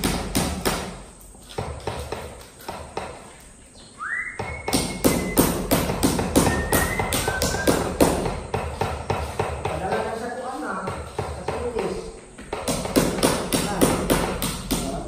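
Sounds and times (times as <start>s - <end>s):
hammer striking chisel: 0.0s - 3.2s, 4.4s - 10.2s, 12.5s - 15.0s
high whistling note: 4.0s - 5.6s.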